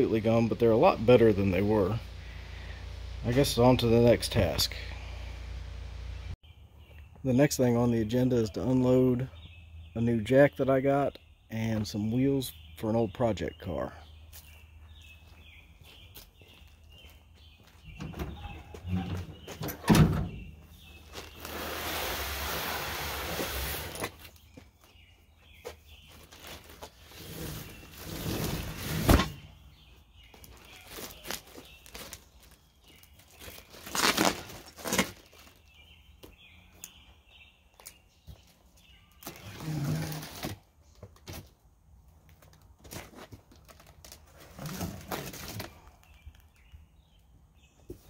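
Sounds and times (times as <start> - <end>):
cardboard box scraping: 21.2 - 24.2, 26.4 - 29.4, 39.4 - 40.6.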